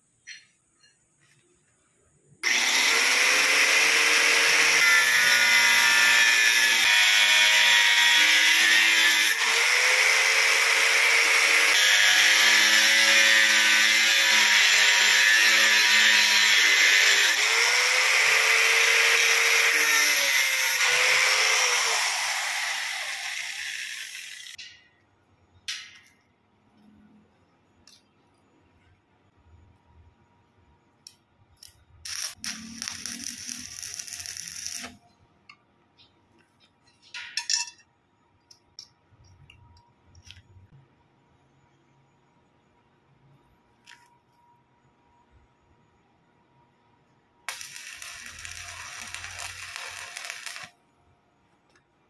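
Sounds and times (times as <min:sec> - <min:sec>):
grinder winding down: 0:02.4 - 0:08.7, 0:09.3 - 0:24.6, 0:47.5 - 0:50.7
angle grinder cutting steel: 0:02.4 - 0:24.6, 0:32.1 - 0:35.0, 0:47.5 - 0:50.7.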